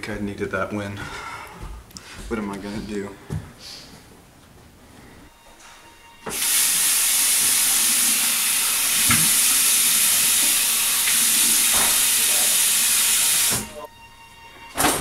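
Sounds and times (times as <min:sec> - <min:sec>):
faucet turned on: 0:06.2 - 0:13.9
water running into basin: 0:06.3 - 0:13.9.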